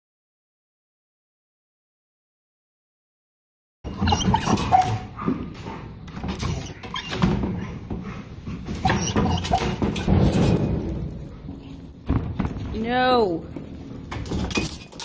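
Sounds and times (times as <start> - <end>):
dog whining and yipping: 3.9 - 5.8, 6.4 - 7.8, 8.7 - 10.1
knocks and clatter in pen: 3.9 - 15.0.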